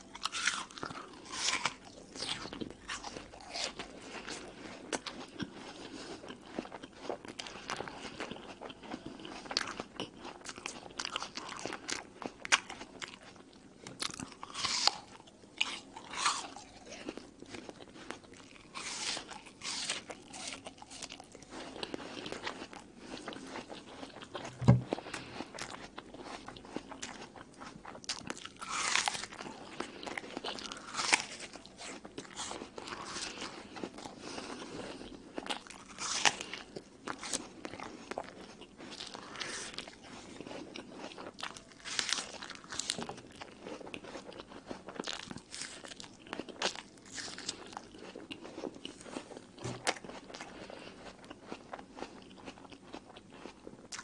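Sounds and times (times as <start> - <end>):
chewing: 0.0 - 54.0
crunching apple bites: 0.0 - 54.0
dull thump: 24.5 - 25.0.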